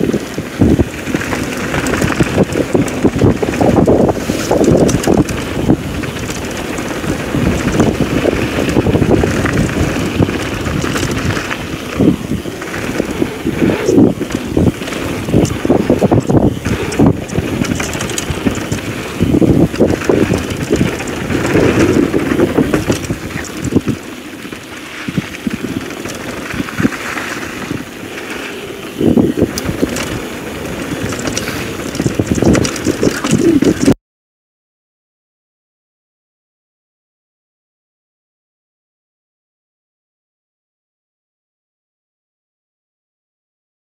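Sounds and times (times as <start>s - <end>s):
bike knocks and rattles: 0.0s - 34.0s
bike tyres rumbling on gravel: 0.0s - 34.0s
wind buffeting microphone: 0.0s - 34.0s.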